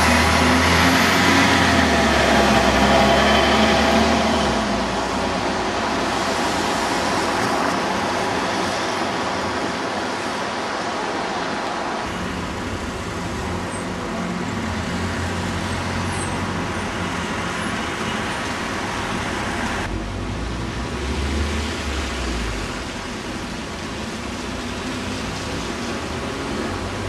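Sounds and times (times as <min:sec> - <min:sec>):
distant train rumble: 0:00.0 - 0:20.8
traffic hum: 0:00.0 - 0:27.0.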